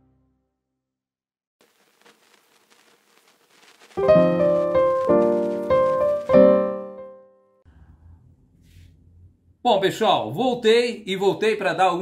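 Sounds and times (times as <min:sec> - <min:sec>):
piano chords: 0:04.0 - 0:07.5.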